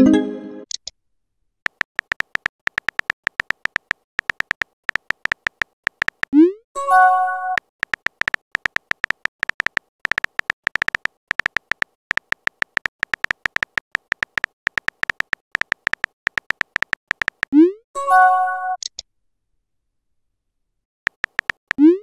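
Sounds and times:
keyboard ticks: 0:01.6 - 0:06.4, 0:07.5 - 0:17.6, 0:21.1 - 0:22.0.

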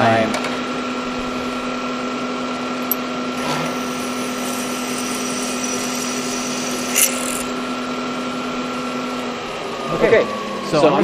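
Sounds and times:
milling machine spindle running: 0:02.5 - 0:09.8
drill bit drilling metal: 0:02.8 - 0:09.1.

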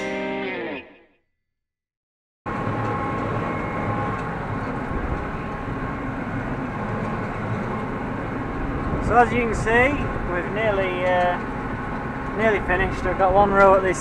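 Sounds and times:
guitar music: 0:00.0 - 0:01.2
tractor engine rumble: 0:02.5 - 0:14.0.

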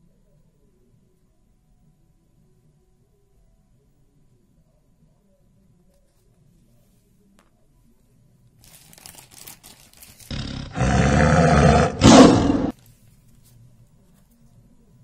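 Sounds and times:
tiger roaring: 0:10.3 - 0:12.7.

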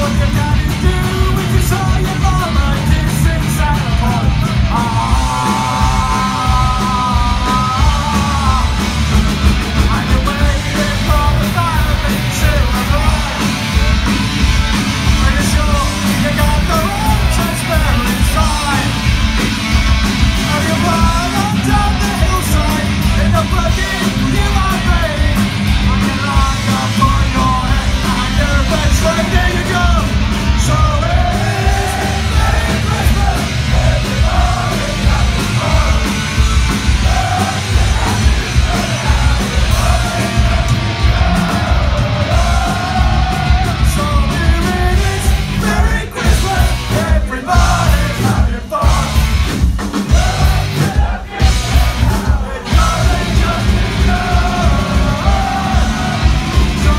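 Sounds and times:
distorted electric guitars: 0:00.0 - 0:56.9
live metal band playing: 0:00.0 - 0:56.9
shouted vocals: 0:04.1 - 0:09.0, 0:26.0 - 0:49.3, 0:50.0 - 0:56.9.

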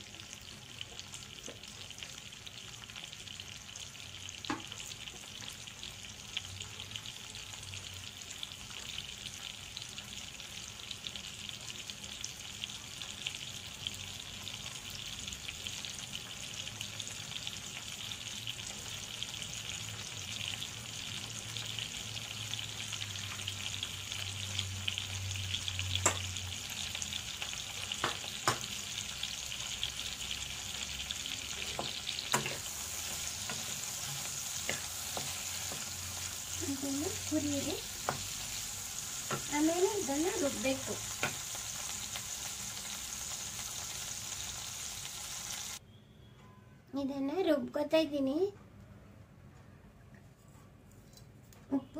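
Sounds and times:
food sizzling in a pan: 0:00.0 - 0:45.8
spatula stirring a pan: 0:29.6 - 0:39.7.

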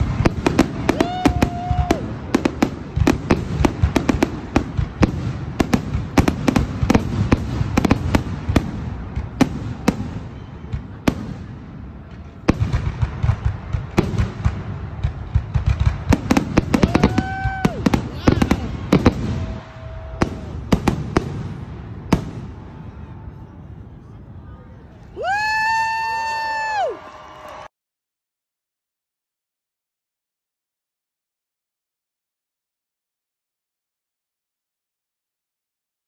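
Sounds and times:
fireworks bangs and crackles: 0:00.0 - 0:26.9.

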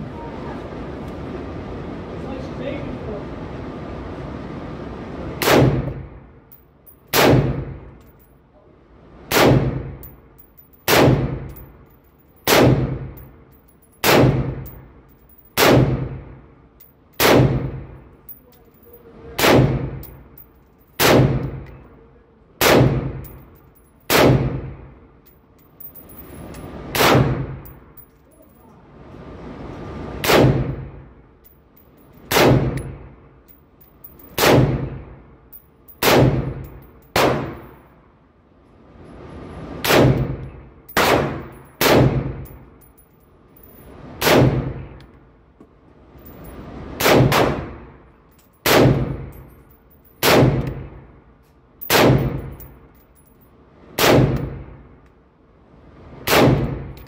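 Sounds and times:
rifle shots echoing indoors: 0:07.1 - 0:07.7, 0:10.9 - 0:11.6, 0:12.4 - 0:13.1, 0:14.0 - 0:14.7, 0:15.6 - 0:16.2, 0:17.2 - 0:17.8, 0:19.4 - 0:20.1, 0:21.0 - 0:21.6, 0:22.6 - 0:23.3, 0:24.1 - 0:24.8, 0:34.4 - 0:35.0, 0:36.0 - 0:37.8, 0:41.0 - 0:42.4, 0:47.0 - 0:47.9, 0:48.6 - 0:49.3, 0:51.8 - 0:52.6.

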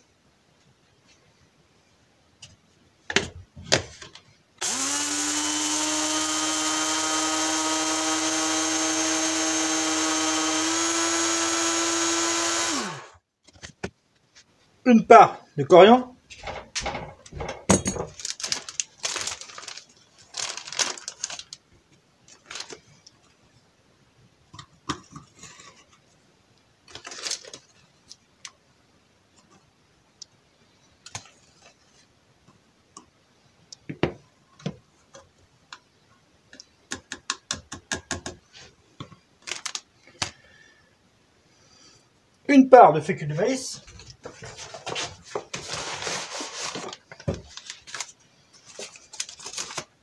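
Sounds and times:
spoon scraping containers: 0:43.9 - 0:47.0.

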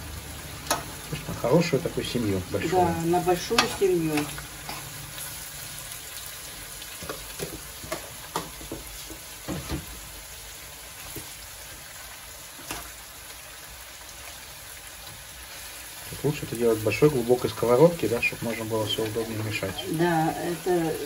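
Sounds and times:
food sizzling in a frying pan: 0:00.0 - 0:21.0
utensil knocking in pan: 0:07.0 - 0:09.9.

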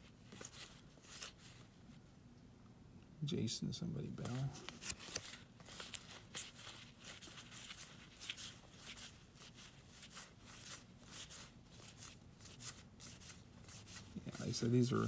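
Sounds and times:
trading cards rustling and flicking: 0:00.2 - 0:01.6, 0:04.2 - 0:15.0.

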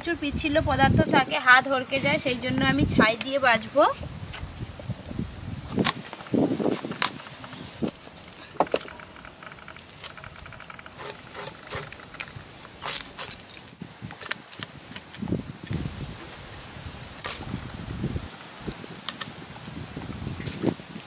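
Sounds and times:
blade scraping fish scales: 0:08.9 - 0:13.5.

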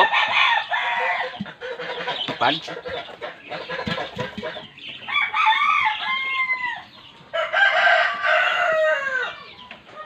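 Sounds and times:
rooster crowing: 0:00.0 - 0:01.4, 0:05.1 - 0:09.5.

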